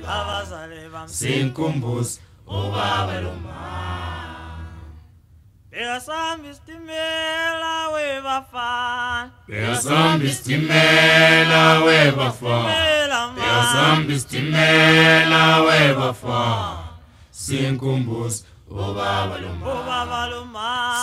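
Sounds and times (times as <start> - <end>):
unaccompanied choir singing: 0.0 - 5.1, 9.5 - 21.0.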